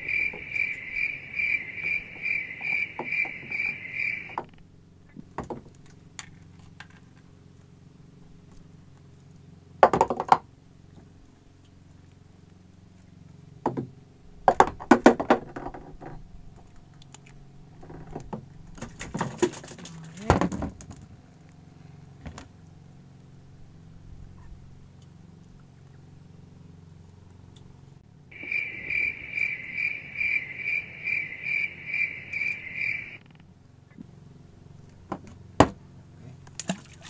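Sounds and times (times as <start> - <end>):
high pulsing chirp: 0.0 - 4.4, 28.3 - 33.3
knocks in a wooden boat: 5.2 - 5.7, 9.8 - 10.5, 13.6 - 16.2, 18.0 - 21.0, 35.0 - 35.8.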